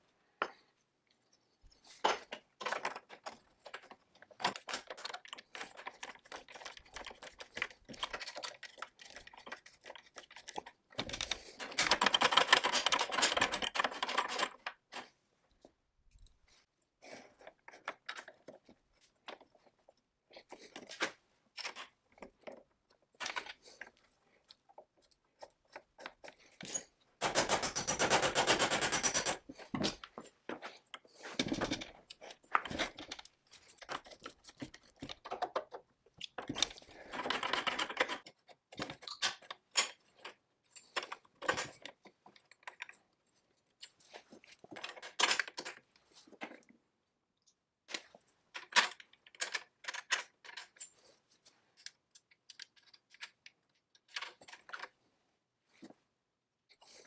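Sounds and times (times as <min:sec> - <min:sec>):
small metal parts clicking and clinking: 0:01.8 - 0:15.1, 0:23.2 - 0:30.1, 0:30.8 - 0:43.0, 0:47.9 - 0:55.0
rapid clicks: 0:27.2 - 0:29.4.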